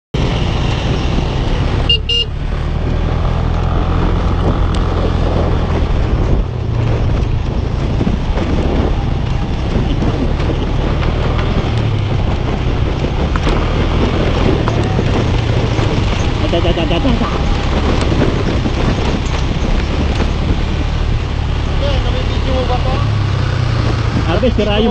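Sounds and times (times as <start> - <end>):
motorcycle engine running: 0.2 - 24.9
tyres on gravel road: 0.2 - 24.9
horn beep: 1.8 - 2.4.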